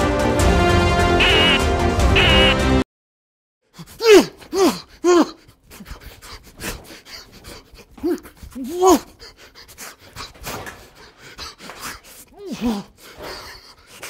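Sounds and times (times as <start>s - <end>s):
rising and falling vocal calls: 1.2s - 1.6s.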